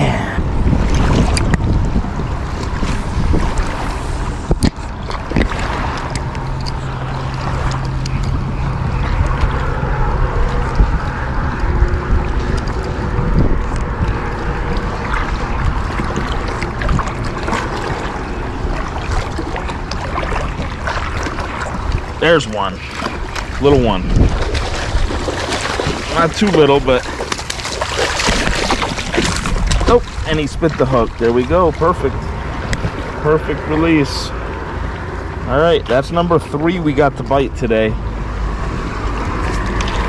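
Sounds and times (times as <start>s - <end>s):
low steady hum: 0.0s - 40.0s
small waves lapping: 0.0s - 40.0s
wind buffeting microphone: 0.0s - 40.0s.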